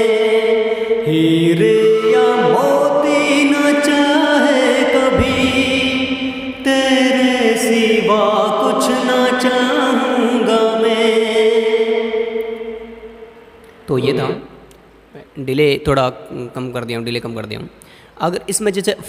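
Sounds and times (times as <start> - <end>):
man singing with delay echo: 0.0 - 14.5.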